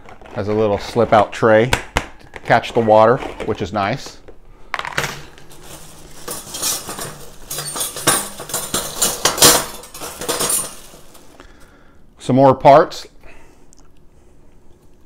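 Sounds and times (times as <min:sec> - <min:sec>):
metal wire parts clinking: 0:04.9 - 0:11.4.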